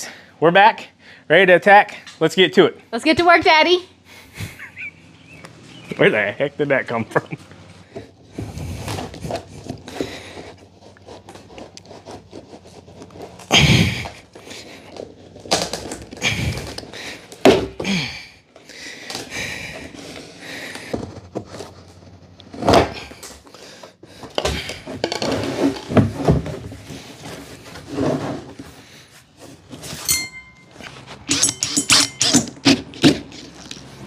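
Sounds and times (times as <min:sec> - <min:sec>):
plastic scraping and squeaking: 0:19.8 - 0:30.0, 0:30.8 - 0:34.0.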